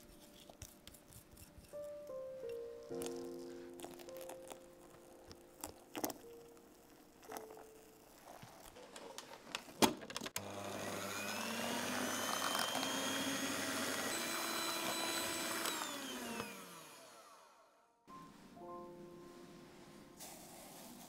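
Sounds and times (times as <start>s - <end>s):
electric hand mixer running: 10.4s - 17.8s.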